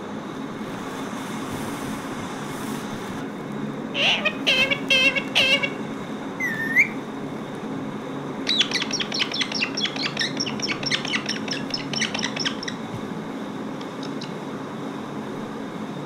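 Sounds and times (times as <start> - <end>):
parakeet rising whistle: 4.0 - 7.0, 8.5 - 12.8
parakeet sharp chirps: 4.0 - 7.0, 8.5 - 12.9, 14.0 - 14.4.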